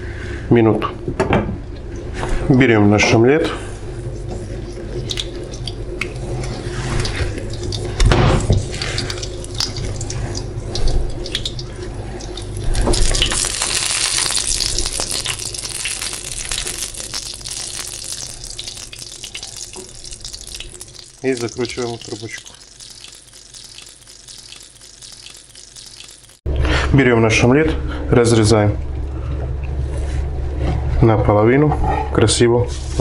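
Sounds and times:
omelette sizzling in a pan: 6.3s - 26.4s.

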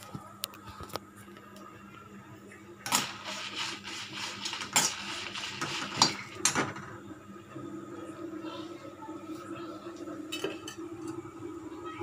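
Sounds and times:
metal spatula scraping a pan: 2.9s - 6.4s.

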